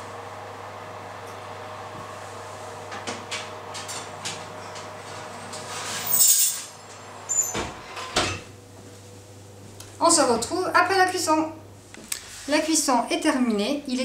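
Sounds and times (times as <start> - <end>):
rough metal scrape: 5.6 - 6.7
steady low hum: 6.8 - 14.0.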